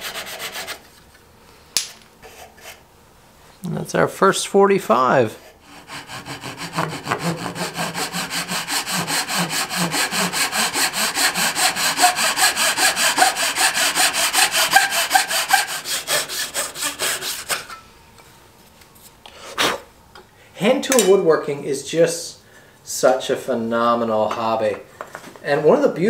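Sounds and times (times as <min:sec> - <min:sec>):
saw cutting wood: 0:00.0 - 0:00.8, 0:05.4 - 0:17.8.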